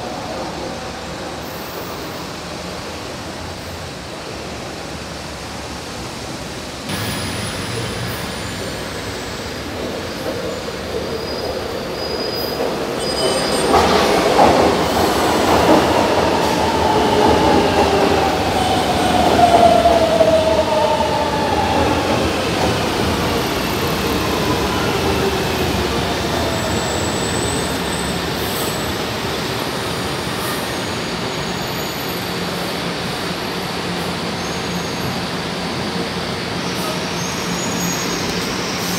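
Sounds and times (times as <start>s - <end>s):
train standing hum: 5.1s - 31.4s
train braking whine: 6.9s - 32.8s.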